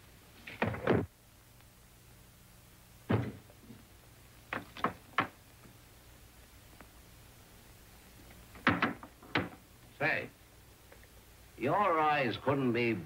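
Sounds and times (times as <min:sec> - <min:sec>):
faint film soundtrack hum: 0:00.0 - 0:13.0
dull thud: 0:03.1 - 0:03.4.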